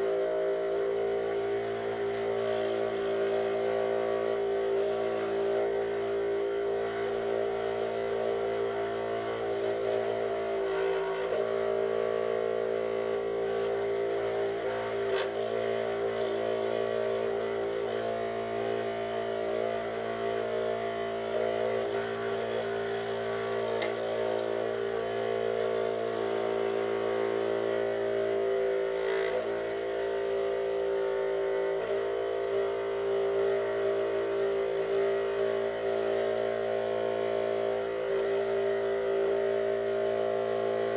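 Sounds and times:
scroll saw cutting plywood: 0:08.8 - 0:11.8, 0:12.8 - 0:30.1.

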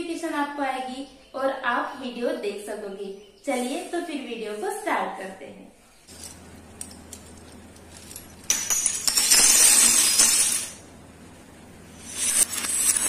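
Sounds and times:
metal bottle caps clattering: 0:06.1 - 0:10.8.

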